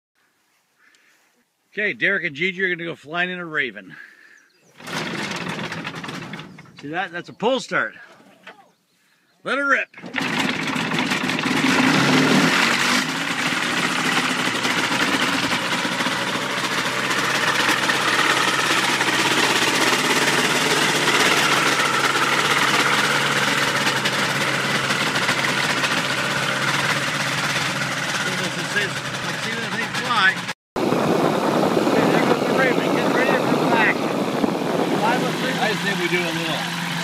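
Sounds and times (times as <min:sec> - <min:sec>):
ultralight aircraft engine running: 0:04.8 - 0:06.8, 0:10.0 - 0:37.0.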